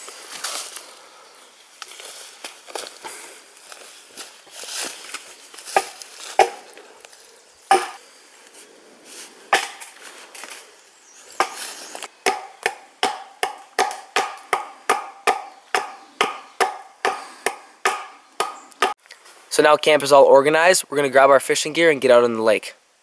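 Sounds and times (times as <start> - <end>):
axe chopping wood: 5.8 - 6.7, 7.7 - 8.0, 9.6 - 10.0, 12.2 - 19.0.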